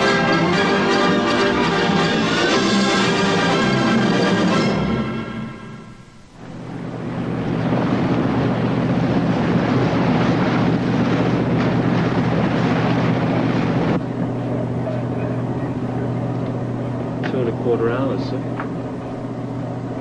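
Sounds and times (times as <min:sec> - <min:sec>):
low boat engine drone: 0:00.0 - 0:20.0
rush of bow spray and water: 0:06.4 - 0:14.6
wind on microphone: 0:06.4 - 0:17.2.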